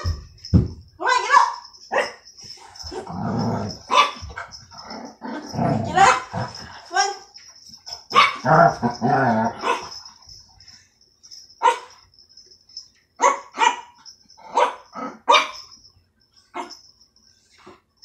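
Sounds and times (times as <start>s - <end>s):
dog barking: 3.8s - 4.6s, 8.1s - 8.8s, 9.5s - 10.0s, 11.6s - 12.0s, 13.2s - 15.6s.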